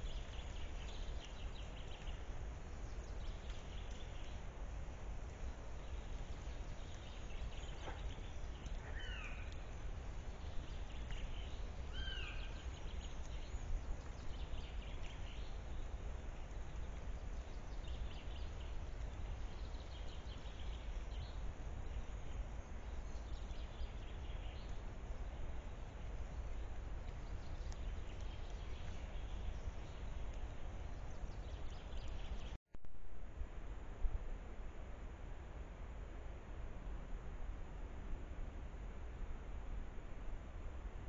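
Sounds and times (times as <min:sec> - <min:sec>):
deer footsteps rustling on forest floor: 0:00.0 - 0:21.8
low outdoor rumble: 0:00.0 - 0:41.0.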